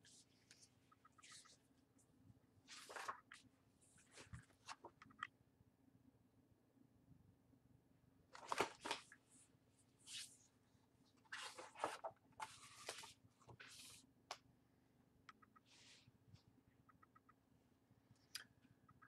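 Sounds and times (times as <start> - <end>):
book pages turning: 2.7 - 3.4, 8.4 - 9.2, 11.2 - 14.0.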